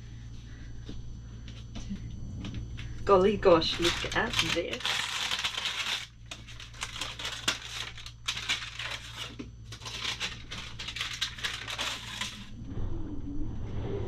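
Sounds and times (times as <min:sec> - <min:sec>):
baking paper crinkling: 0:03.4 - 0:12.6.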